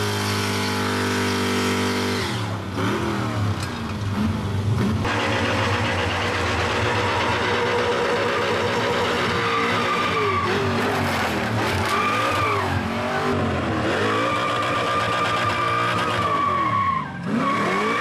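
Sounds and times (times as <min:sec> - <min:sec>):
car engine at high revs: 0:00.0 - 0:18.0.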